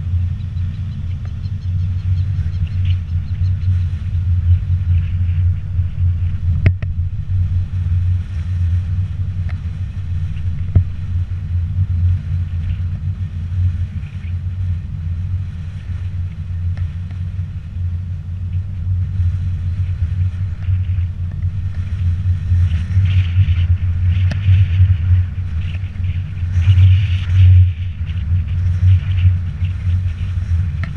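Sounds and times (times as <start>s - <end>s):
wind and road noise: 0.0s - 30.9s
faint clicks: 0.4s - 3.8s.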